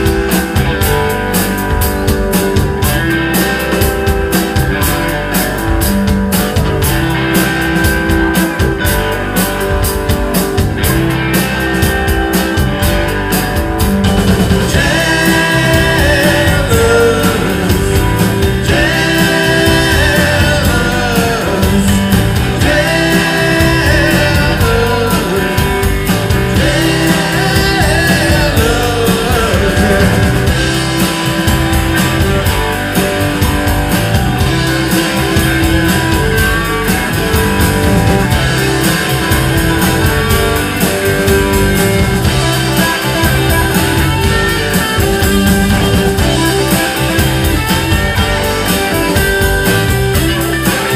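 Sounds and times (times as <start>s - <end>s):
bass: 0.0s - 50.9s
drums: 0.0s - 50.9s
electric guitars: 0.0s - 50.9s
person singing: 14.7s - 30.9s, 38.9s - 49.2s.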